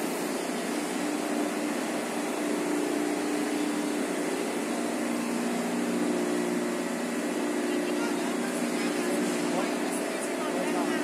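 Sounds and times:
machine mechanical drone: 0:00.0 - 0:11.0.

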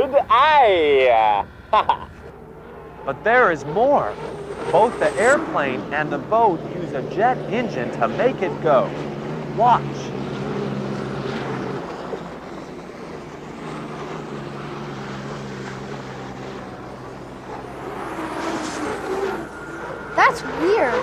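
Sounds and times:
jet turbine engine drone: 0:00.0 - 0:21.0
rushing noise: 0:09.4 - 0:21.0.

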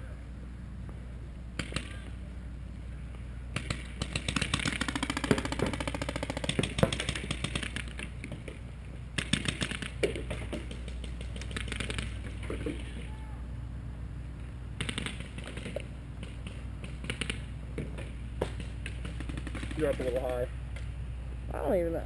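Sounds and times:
paintball markers firing: 0:03.6 - 0:08.6, 0:09.2 - 0:13.0, 0:14.8 - 0:20.5.

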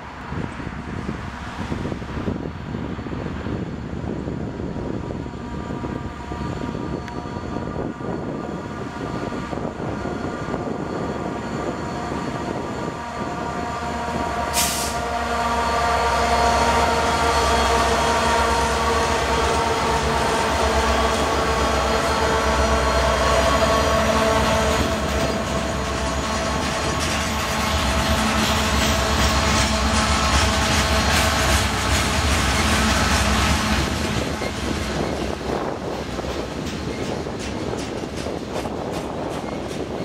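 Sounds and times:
diesel locomotive engines: 0:00.0 - 0:40.0
freight cars rolling past: 0:08.6 - 0:40.0
brief hiss: 0:14.6 - 0:15.0.

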